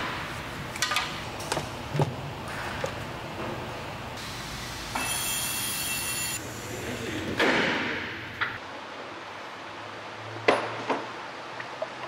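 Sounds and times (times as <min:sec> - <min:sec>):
pressurised air hissing: 0:04.2 - 0:07.4.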